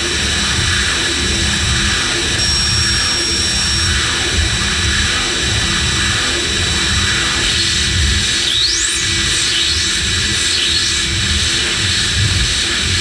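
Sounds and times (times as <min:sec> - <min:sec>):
thin high steady tone: 0:02.4 - 0:04.0.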